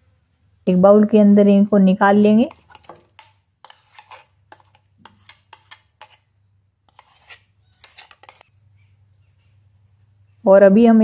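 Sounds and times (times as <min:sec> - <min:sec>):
spoon scraping metal jar: 0:02.1 - 0:06.3, 0:06.9 - 0:08.5.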